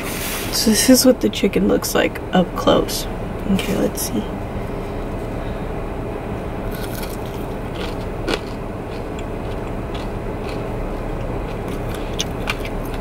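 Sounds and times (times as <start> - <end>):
car low hum: 0.0 - 13.0
chewing crispy food: 6.7 - 13.0.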